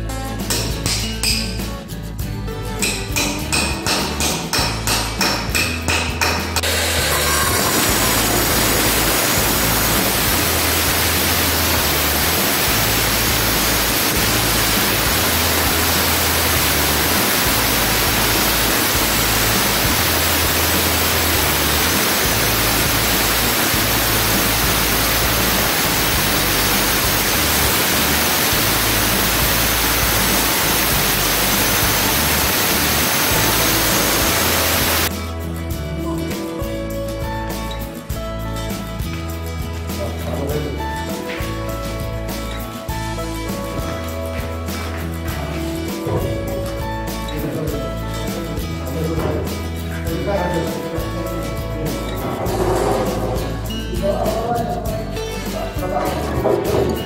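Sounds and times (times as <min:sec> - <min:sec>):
angle grinder cutting stone: 0:05.6 - 0:35.1.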